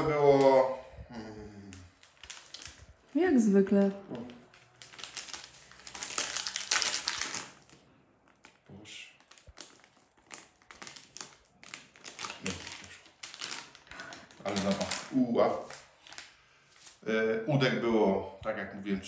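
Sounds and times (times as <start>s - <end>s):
plastic packet crinkling: 1.9s - 3.0s, 4.1s - 17.0s.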